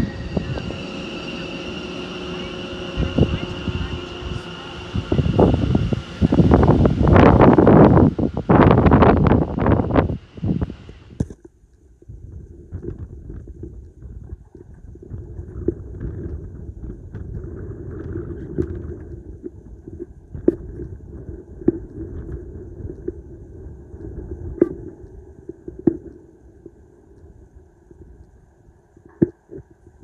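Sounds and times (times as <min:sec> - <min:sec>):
train rumbling into platform: 0:00.0 - 0:11.2.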